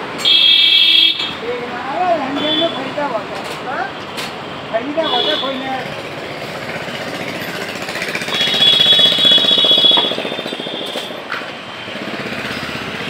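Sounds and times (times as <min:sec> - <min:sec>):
motorcycle engine thumping: 0:07.3 - 0:11.5.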